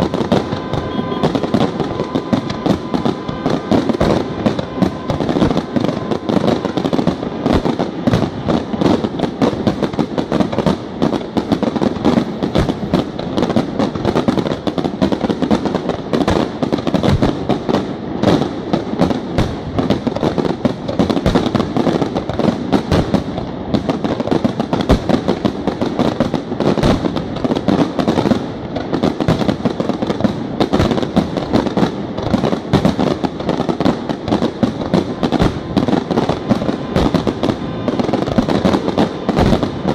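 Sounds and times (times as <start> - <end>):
fireworks bursting: 0.0 - 39.9.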